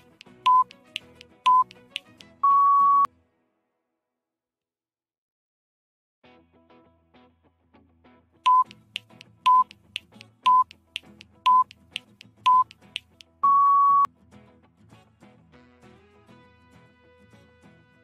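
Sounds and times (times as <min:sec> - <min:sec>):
short electronic beeps: 0:00.4 - 0:00.7, 0:01.5 - 0:01.7, 0:02.4 - 0:03.1, 0:08.5 - 0:08.8, 0:09.5 - 0:09.7, 0:10.5 - 0:10.7, 0:11.5 - 0:11.7, 0:12.5 - 0:12.7, 0:13.4 - 0:14.1
longer higher beep: 0:00.5 - 0:00.7, 0:01.5 - 0:01.7, 0:02.4 - 0:03.1, 0:08.5 - 0:08.7, 0:09.5 - 0:09.7, 0:10.5 - 0:10.7, 0:11.5 - 0:11.7, 0:12.5 - 0:12.7, 0:13.4 - 0:14.1.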